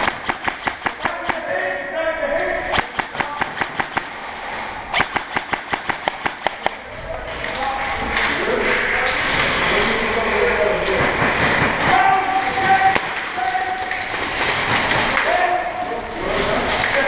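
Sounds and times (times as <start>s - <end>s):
airsoft rifle shots: 0.0s - 1.6s, 2.7s - 6.9s, 11.0s - 13.4s.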